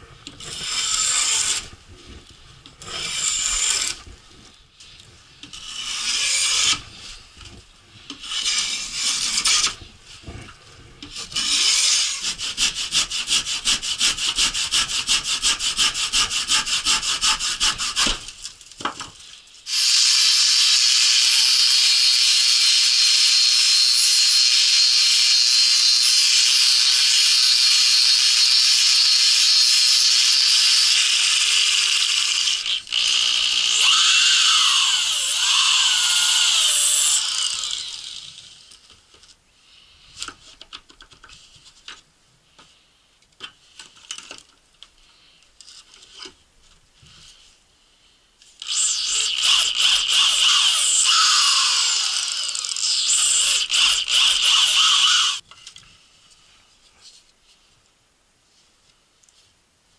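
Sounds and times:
angle grinder running: 19.7 - 38.7, 48.6 - 55.4
power tool starting up: 48.6 - 55.4.

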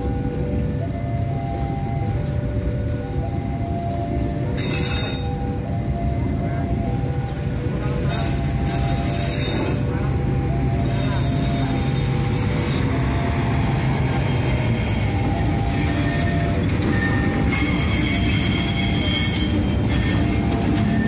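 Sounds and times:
train wheels rumbling on rails: 0.0 - 21.0
high-pitched wheel squealing: 10.8 - 21.0.

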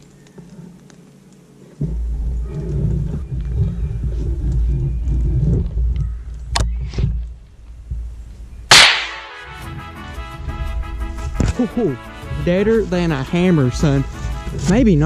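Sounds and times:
low rumble: 1.8 - 9.8
rifle shot: 8.7 - 9.7.

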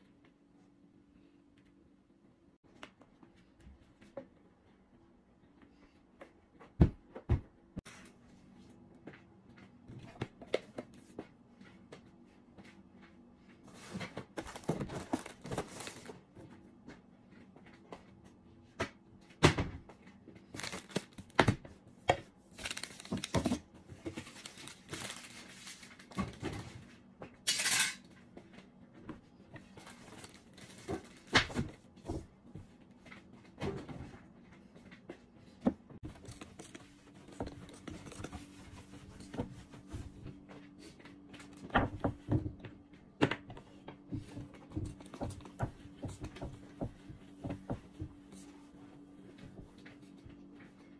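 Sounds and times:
paper rustling: 13.8 - 16.1, 20.4 - 21.3, 22.5 - 26.2.

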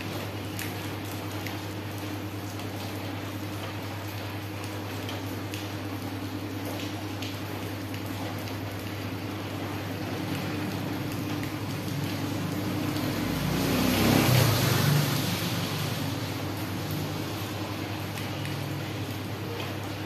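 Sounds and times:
vehicle engine passing by: 10.3 - 17.5.

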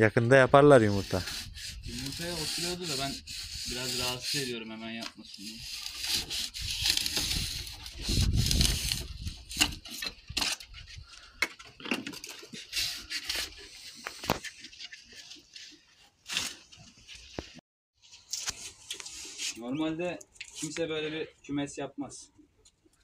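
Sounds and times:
blade scraping foam off wood: 0.8 - 10.2.

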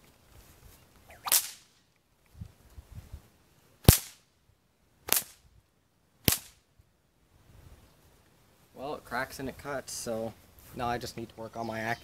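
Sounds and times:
whip cracks: 1.1 - 1.8, 3.8 - 4.3, 5.1 - 5.4, 6.2 - 6.6.

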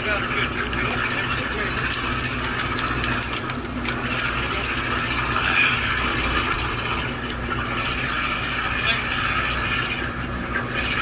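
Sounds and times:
boat engine idling: 0.0 - 11.0
wind and water noise: 0.0 - 11.0.

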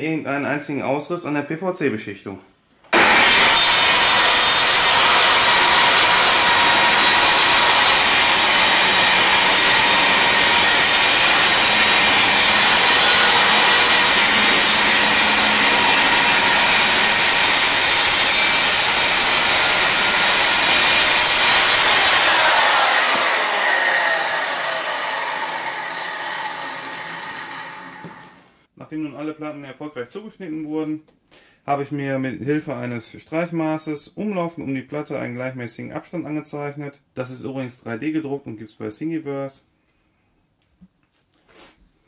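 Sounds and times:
circular saw cutting: 3.0 - 28.5
saw blade winding down: 3.0 - 28.5.

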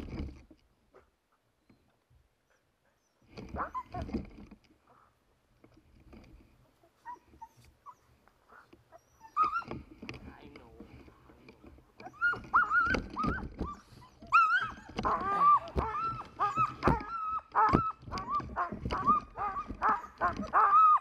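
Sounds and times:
dogs whining and yelping: 2.5 - 5.1, 6.8 - 10.1, 11.9 - 21.0.

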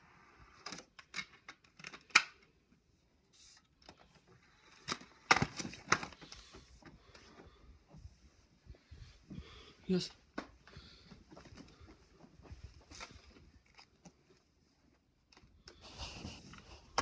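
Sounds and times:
plastic dvd case clicks: 0.6 - 2.4
plastic clatter: 0.6 - 2.5, 4.7 - 6.9.

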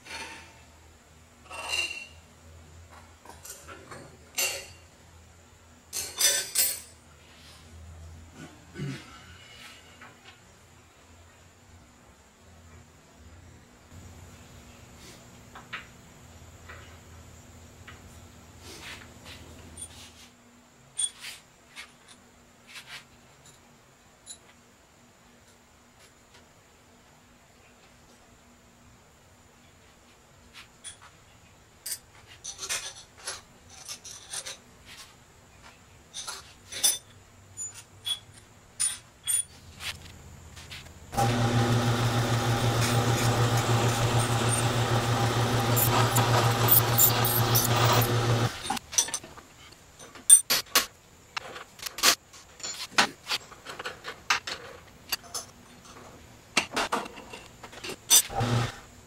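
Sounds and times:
metal tools clicking and knocking: 31.9 - 34.6, 45.8 - 49.4, 50.0 - 52.9
drill motor humming: 41.2 - 48.8, 58.3 - 58.8.

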